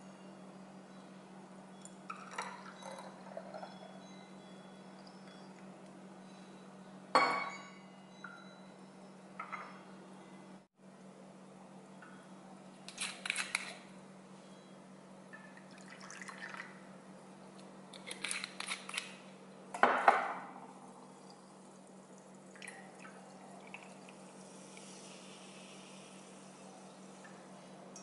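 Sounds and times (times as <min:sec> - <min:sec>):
glass clinking: 0:01.7 - 0:05.6, 0:07.1 - 0:08.8
liquid pouring into glass: 0:02.1 - 0:04.0, 0:15.6 - 0:16.8
soda water pouring: 0:15.6 - 0:16.8, 0:21.2 - 0:26.8.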